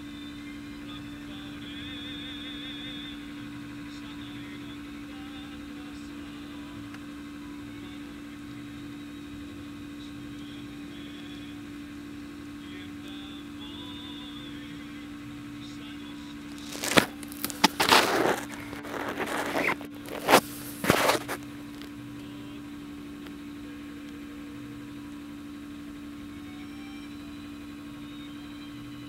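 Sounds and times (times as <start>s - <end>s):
truck engine low hum: 0.0s - 29.0s
loud crackling noises: 16.4s - 22.0s.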